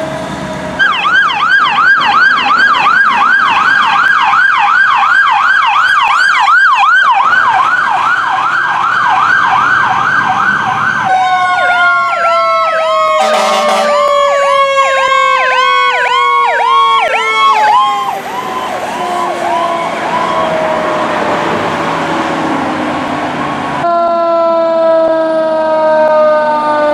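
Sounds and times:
fire truck siren yelp: 0.0s - 26.9s
electronic siren warbling: 0.8s - 22.4s
siren tone sliding down: 0.8s - 26.9s
air horn blast: 13.1s - 14.1s.

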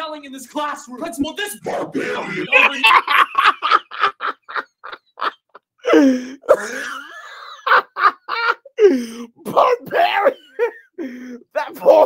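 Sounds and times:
man laughing hard: 2.0s - 9.0s.

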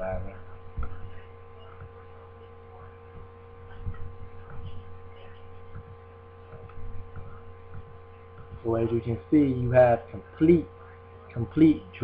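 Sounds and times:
soft low thumps and clicks: 0.0s - 9.1s
electrical mains hum: 0.0s - 12.0s.

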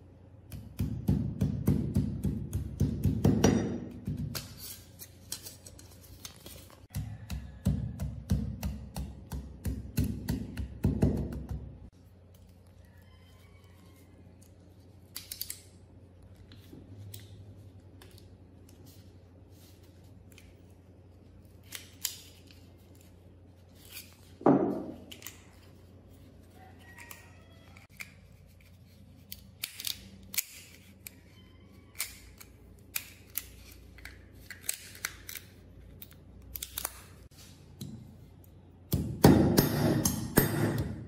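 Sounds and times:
hammer striking steel tube: 38.9s - 41.0s.

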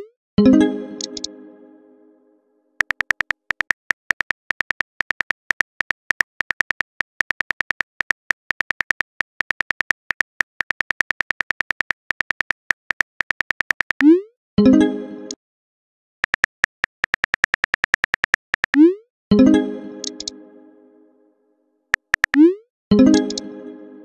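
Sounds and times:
phone keyboard key clicks: 2.8s - 14.0s, 16.2s - 18.8s, 20.1s - 20.3s, 22.0s - 22.4s.

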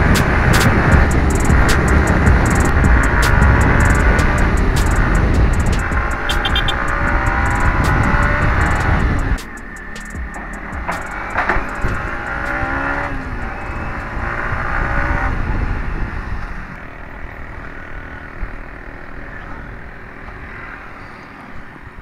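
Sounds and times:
motorcycle engine running: 0.0s - 15.7s
wind noise: 0.0s - 17.6s.

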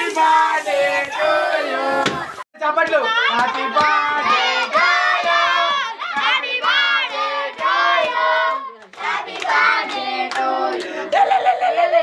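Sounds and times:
children singing and chanting: 0.0s - 2.3s, 3.0s - 11.1s
rhythmic hand clapping: 2.8s - 11.0s.

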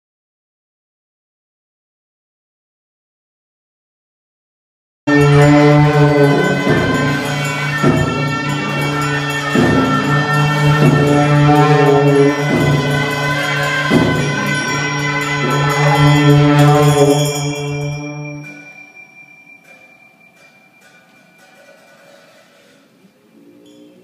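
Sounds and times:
horns droning: 5.1s - 18.7s
drum and cymbals striking: 5.1s - 23.0s.

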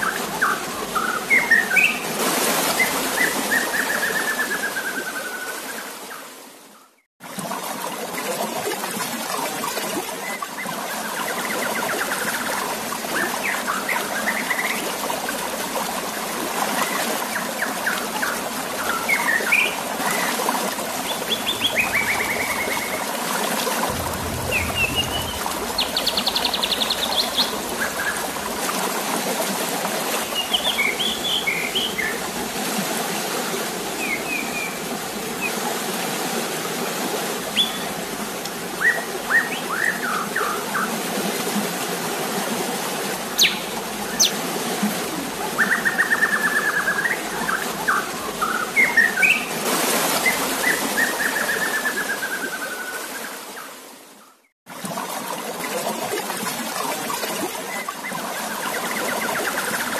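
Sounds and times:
water splashing and trickling: 7.2s - 54.0s, 54.7s - 59.9s
bird chirps and trills: 23.9s - 28.2s.

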